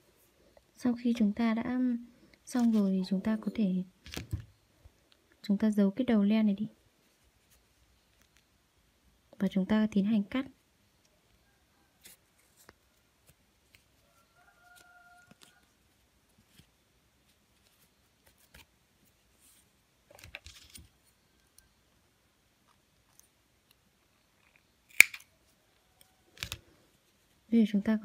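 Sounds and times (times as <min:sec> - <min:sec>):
soft yarn rustling: 0:00.0 - 0:03.7, 0:06.2 - 0:08.6, 0:10.4 - 0:21.6, 0:25.5 - 0:27.9
thread snips snipping: 0:24.9 - 0:25.2.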